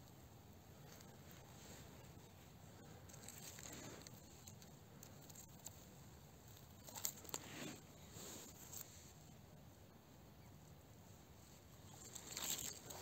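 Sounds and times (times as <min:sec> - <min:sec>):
rustling of moss and twigs: 0:00.6 - 0:09.4, 0:11.1 - 0:13.0.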